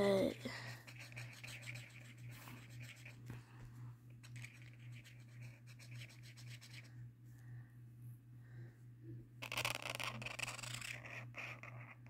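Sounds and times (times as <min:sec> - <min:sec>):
steady low hum: 0:00.0 - 0:12.0
marker scribbling on paper: 0:00.8 - 0:03.2, 0:04.2 - 0:06.9, 0:09.5 - 0:12.0.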